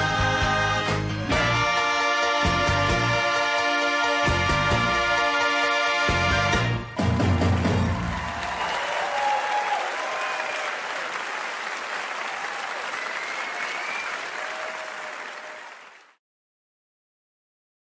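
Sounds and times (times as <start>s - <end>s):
audience applause: 7.0s - 16.2s
faint cheering: 7.6s - 16.1s.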